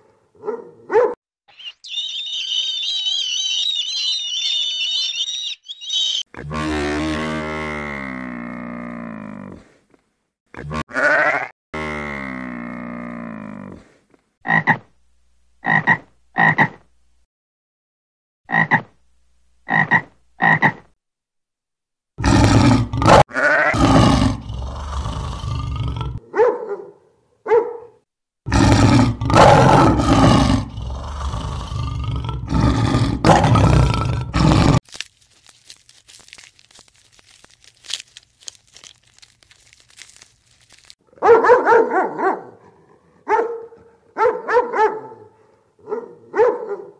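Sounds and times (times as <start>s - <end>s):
lions roaring: 23.8s - 26.2s, 28.5s - 34.8s.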